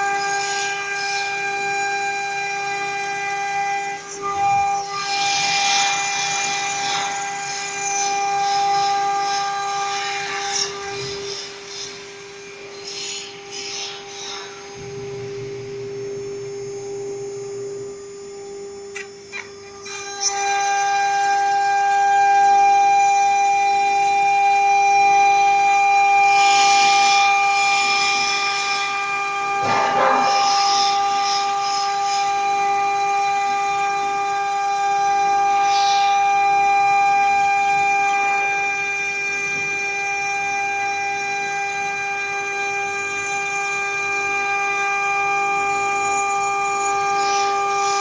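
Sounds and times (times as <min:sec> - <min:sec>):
cnc router spindle whining: 0:00.0 - 0:48.0
low hum: 0:21.1 - 0:39.8.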